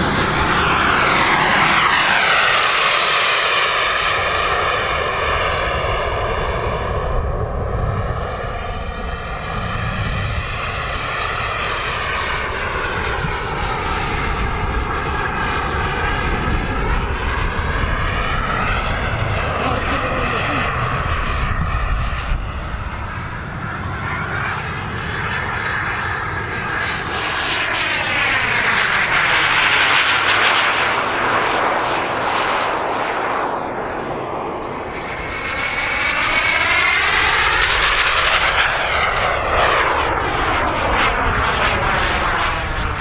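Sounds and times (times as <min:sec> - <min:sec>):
model jet whine flying past: 0:00.0 - 0:43.0.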